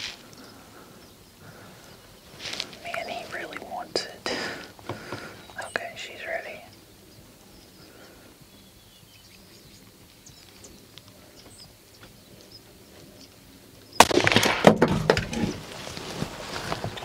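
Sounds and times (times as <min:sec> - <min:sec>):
faint bird chirps: 0:00.2 - 0:04.3, 0:05.1 - 0:14.0
rifle shot: 0:14.0 - 0:15.0.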